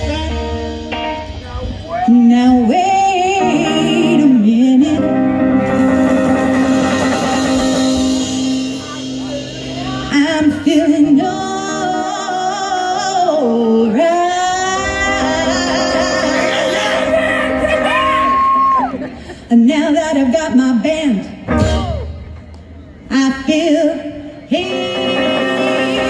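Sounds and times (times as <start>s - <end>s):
upright bass: 0.0s - 18.8s, 21.4s - 22.3s
electric guitars: 0.0s - 20.5s, 24.3s - 26.0s
woman singing: 2.0s - 5.8s, 9.8s - 18.3s, 23.1s - 26.0s.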